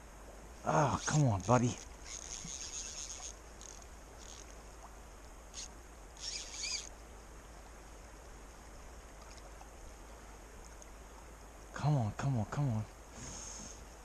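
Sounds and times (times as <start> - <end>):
creek water rushing: 0.0 - 11.8
high-pitched buzzes: 0.8 - 4.5, 5.5 - 6.9.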